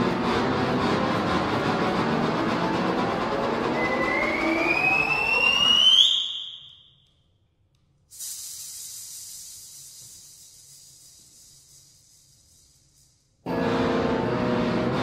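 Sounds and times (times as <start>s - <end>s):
high hiss: 8.0s - 13.5s.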